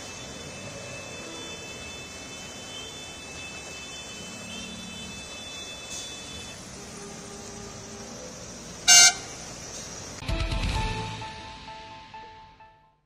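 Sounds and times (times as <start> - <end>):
faint high steady tone: 0.0 - 9.6.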